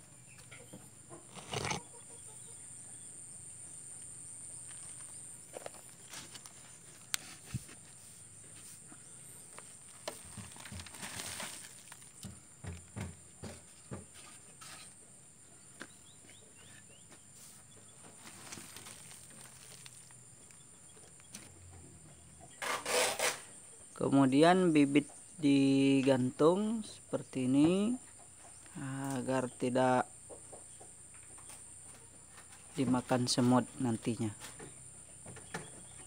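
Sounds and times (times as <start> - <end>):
high insect drone: 0.0 - 35.9
faint footsteps: 4.6 - 14.9, 15.6 - 22.2
handling rustle: 4.7 - 12.4, 18.1 - 20.6.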